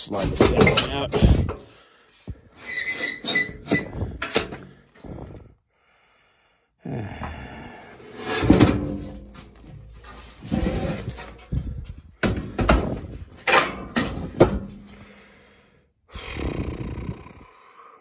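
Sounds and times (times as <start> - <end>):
metal blower housing scraping and clunking: 0.1 - 1.8, 8.2 - 14.9.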